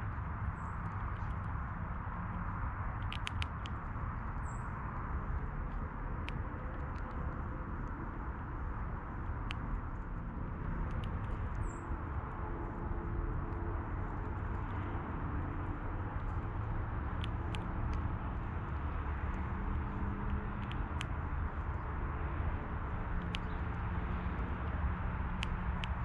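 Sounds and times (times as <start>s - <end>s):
low background rumble: 0.0s - 26.0s
animals cracking seed: 3.0s - 3.8s.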